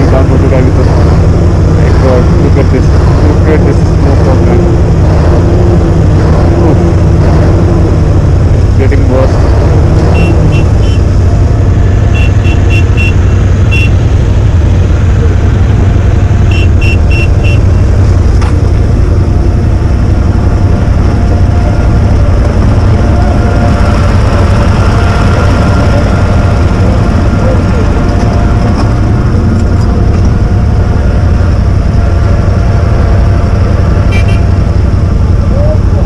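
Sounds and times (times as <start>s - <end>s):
motorcycle engine rumbling: 0.0s - 36.0s
short high-pitched beeps: 10.1s - 11.0s, 12.1s - 14.0s, 16.5s - 17.6s.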